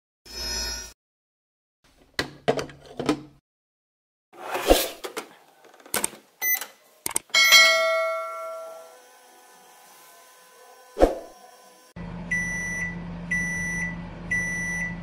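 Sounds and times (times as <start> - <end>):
bell-like ding: 7.3 - 9.0.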